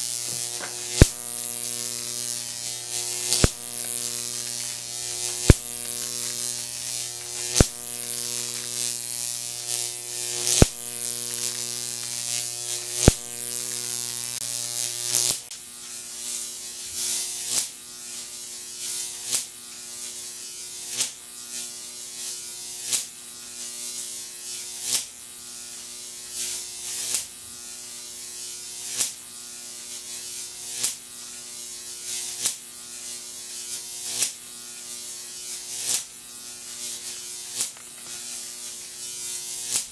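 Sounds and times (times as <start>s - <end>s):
electric arc buzzing: 0.0s - 39.9s
sharp arc pops: 0.1s - 9.5s, 10.2s - 10.9s, 13.0s - 13.8s, 36.8s - 38.9s.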